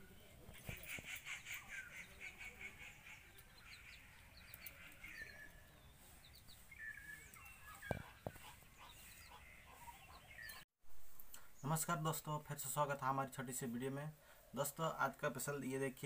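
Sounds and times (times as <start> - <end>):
bird chirps and whistles: 6.6 - 8.5.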